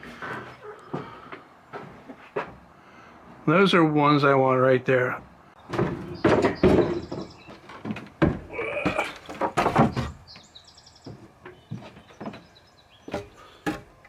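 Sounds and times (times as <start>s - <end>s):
wooden boards knocking together: 5.6s - 10.3s.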